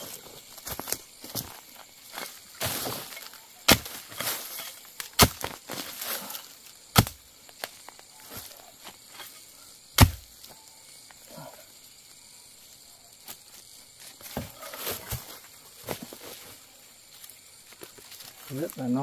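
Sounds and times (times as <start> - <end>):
blade chopping bamboo: 3.7 - 5.7, 6.9 - 7.2, 10.0 - 10.3.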